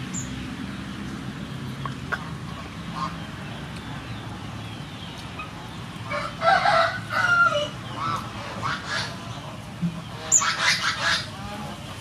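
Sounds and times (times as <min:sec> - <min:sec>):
rooster crowing: 0:06.1 - 0:07.8.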